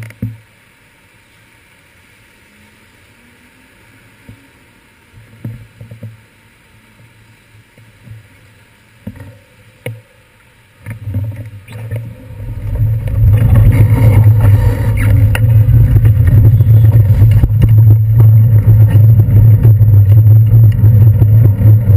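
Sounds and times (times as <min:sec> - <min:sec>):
wind and road rumble: 0:02.1 - 0:21.9
muffled street sound: 0:10.8 - 0:21.9.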